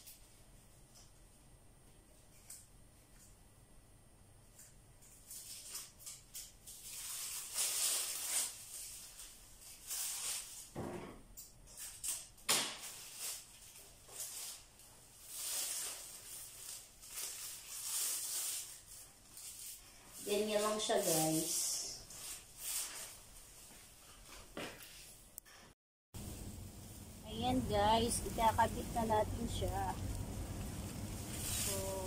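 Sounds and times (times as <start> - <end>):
plastic strips rustling and crinkling: 4.5 - 10.8, 11.7 - 25.2, 27.0 - 32.0.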